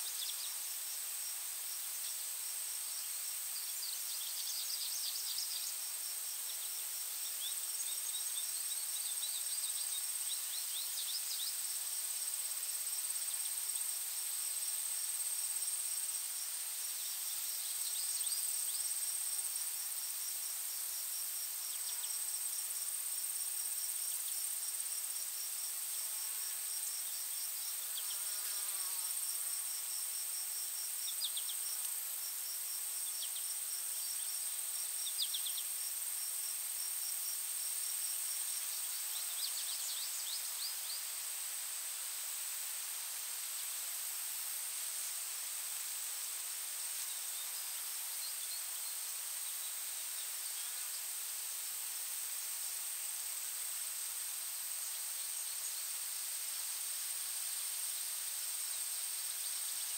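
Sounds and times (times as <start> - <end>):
insect high-pitched trill: 23.6 - 41.2.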